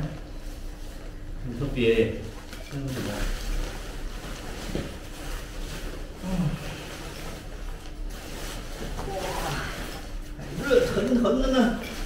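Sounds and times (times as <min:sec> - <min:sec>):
tent fabric rustling and crinkling: 0:02.8 - 0:12.0.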